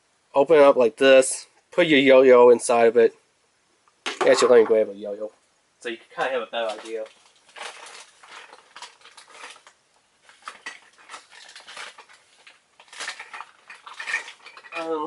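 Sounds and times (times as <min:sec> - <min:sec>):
objects clattering during rummaging: 0:06.6 - 0:15.0.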